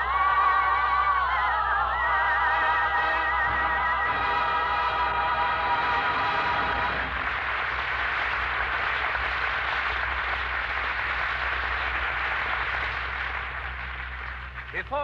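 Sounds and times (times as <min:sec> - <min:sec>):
audience applause: 0:00.0 - 0:15.0
orchestra playing: 0:02.5 - 0:07.4.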